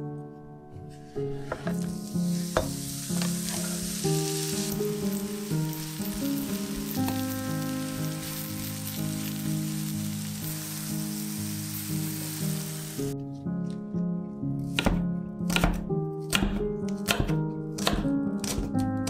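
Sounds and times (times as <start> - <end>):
mushrooms sizzling in oil: 1.5 - 13.2.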